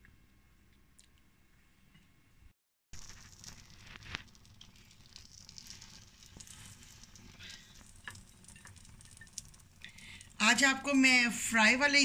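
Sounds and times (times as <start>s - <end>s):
butter sizzling in a pan: 3.0s - 11.8s.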